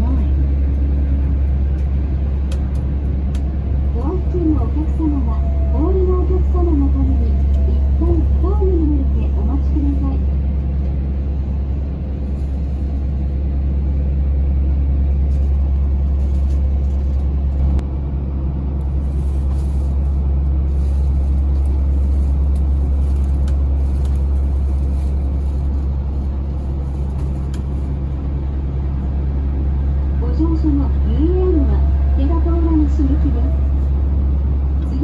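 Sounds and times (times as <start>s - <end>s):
train interior rumble: 0.0s - 35.0s.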